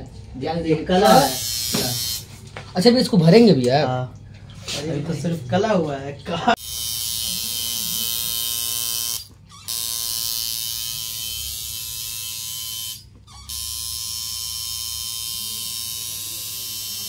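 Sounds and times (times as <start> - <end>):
tattoo machine buzzing: 1.0 - 2.4, 6.6 - 17.0.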